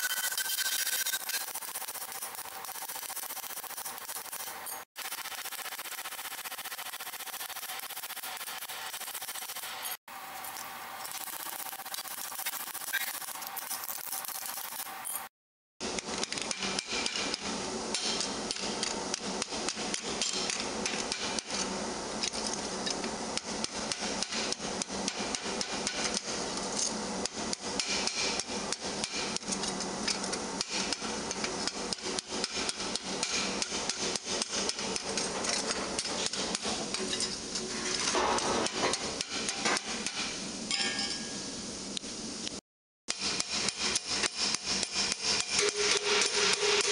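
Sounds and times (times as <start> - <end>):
hammer striking metal: 38.1 - 41.4, 43.1 - 46.9.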